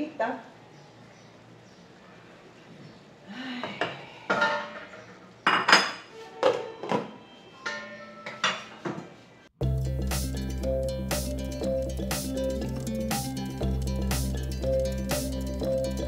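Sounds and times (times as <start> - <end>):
background music: 9.6 - 16.0.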